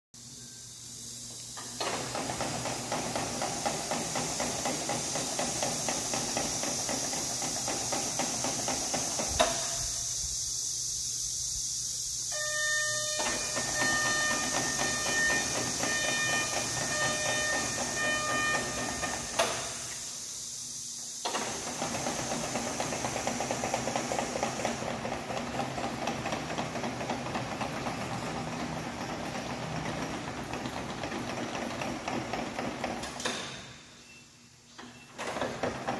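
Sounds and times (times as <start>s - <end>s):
machine running with high hiss: 0.2s - 35.9s
pitched alarm tone: 12.3s - 19.6s.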